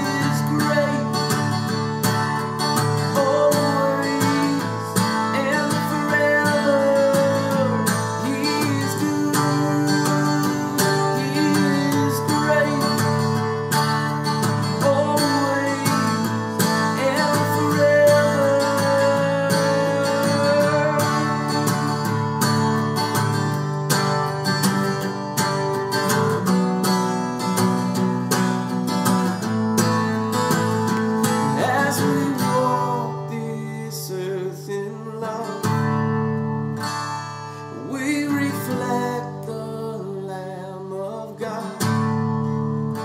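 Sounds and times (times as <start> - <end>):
man singing: 0.0 - 22.8, 31.2 - 36.0, 37.7 - 42.2
acoustic guitar strumming: 0.0 - 43.0.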